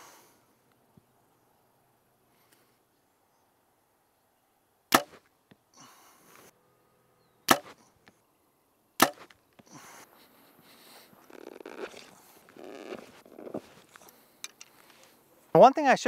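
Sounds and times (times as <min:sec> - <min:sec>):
soft rustling: 0:10.1 - 0:15.3.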